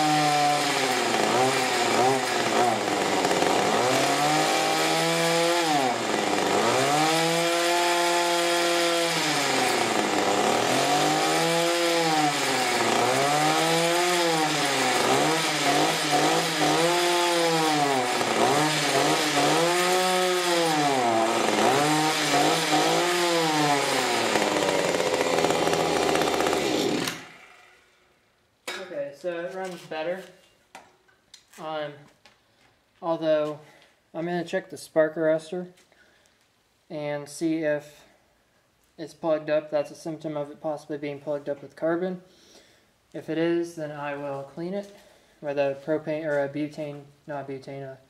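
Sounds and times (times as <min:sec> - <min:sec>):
two-stroke engine revving: 0:00.0 - 0:27.8.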